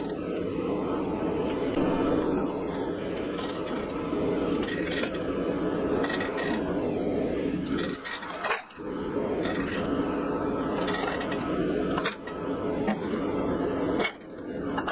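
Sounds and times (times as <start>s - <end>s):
steady shop machine noise: 0.0s - 14.9s.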